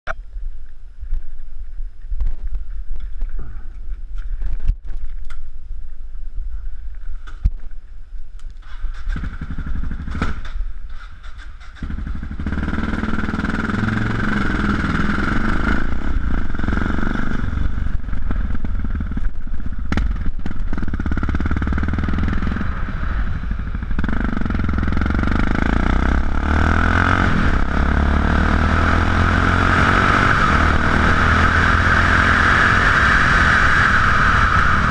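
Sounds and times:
engine knocks and clatter: 0:08.6 - 0:22.6
motorcycle pulling away: 0:08.6 - 0:34.9
motorcycle engine idling: 0:15.8 - 0:25.6.

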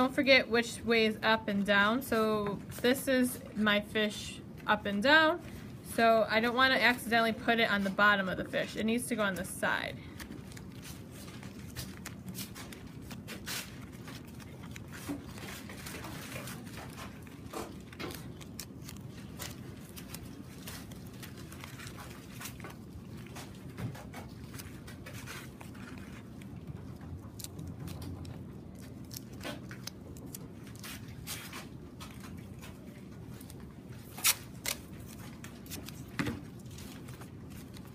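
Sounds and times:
low room hum: 0:00.0 - 0:37.9
newspaper crinkling and rustling: 0:08.9 - 0:37.9.

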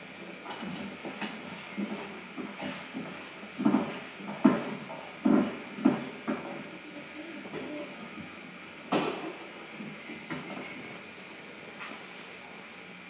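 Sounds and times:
footsteps on wooden stage floor: 0:00.6 - 0:11.0.

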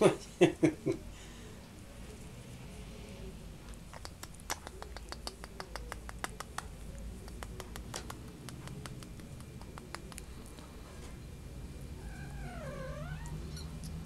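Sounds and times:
hare mouth clicking: 0:03.7 - 0:10.7.

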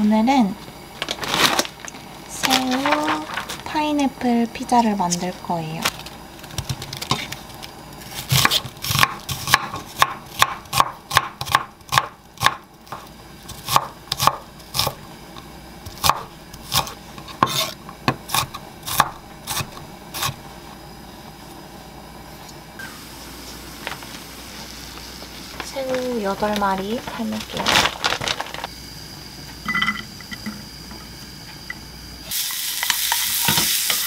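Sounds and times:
knife chopping on wooden board: 0:08.3 - 0:15.0, 0:15.9 - 0:20.4.

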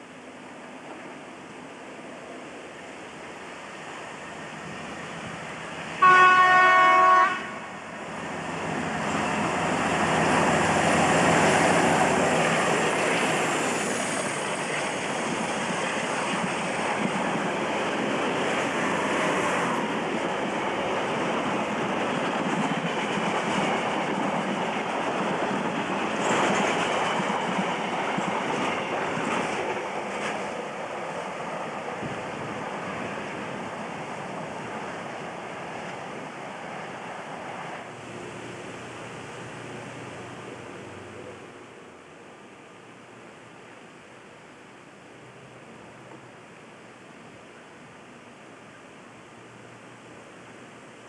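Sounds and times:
diesel locomotive engine: 0:00.1 - 0:44.2
locomotive horn blast: 0:06.0 - 0:07.9, 0:37.9 - 0:41.8.

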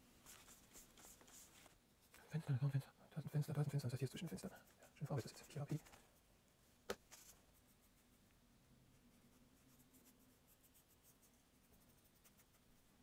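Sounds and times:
low steady hum: 0:00.0 - 0:13.0
paintbrush scratching: 0:00.2 - 0:01.8, 0:08.9 - 0:13.0.

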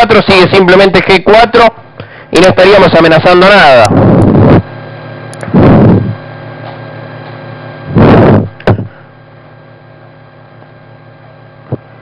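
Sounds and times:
faint mains hum: 0:00.0 - 0:12.0
breaths into microphone: 0:02.0 - 0:02.4, 0:08.0 - 0:09.2.

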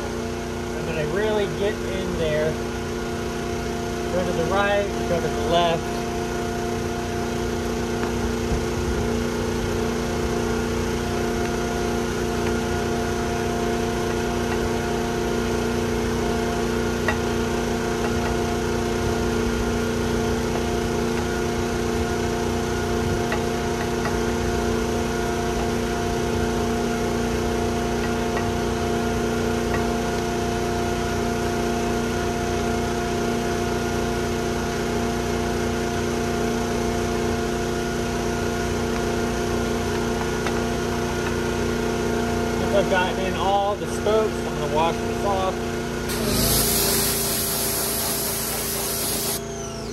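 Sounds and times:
motor droning: 0:46.1 - 0:49.9.

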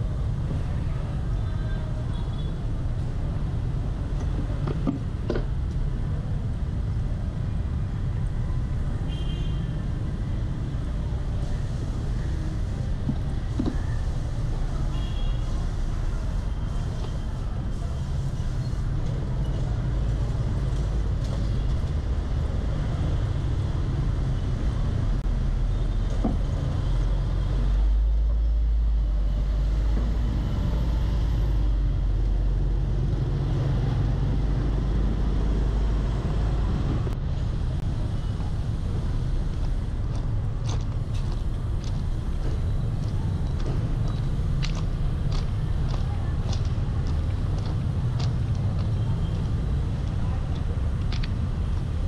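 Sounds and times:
road traffic rumble: 0:00.0 - 0:52.0.

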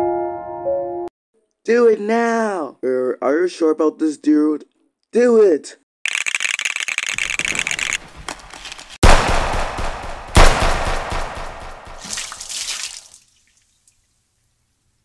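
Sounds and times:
gunshots: 0:09.0 - 0:12.4.

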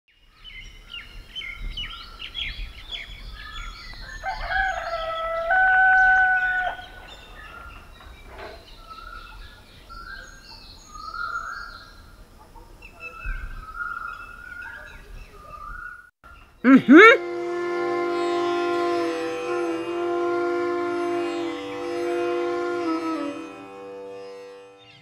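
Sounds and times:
rooster crowing: 0:04.1 - 0:07.0.

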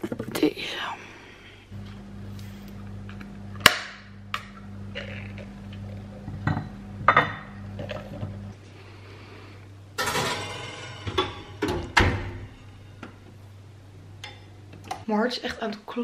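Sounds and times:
steady low hum: 0:01.0 - 0:15.1
metal lid cracking and clinking: 0:10.0 - 0:12.0.

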